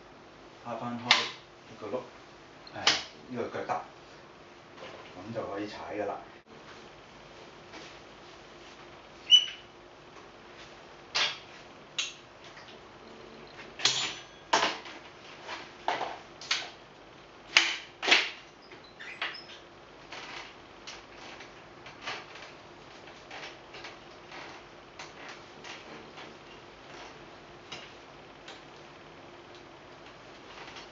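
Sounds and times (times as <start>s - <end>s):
bright metallic ring: 13.3s - 14.6s
bicycle frame clacking and clicking: 20.1s - 26.3s.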